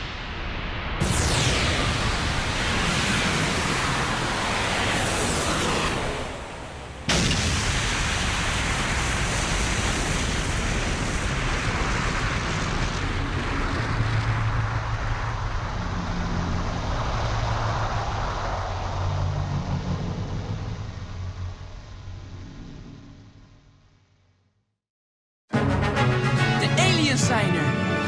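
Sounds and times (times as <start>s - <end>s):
explosion: 0.0s - 19.4s.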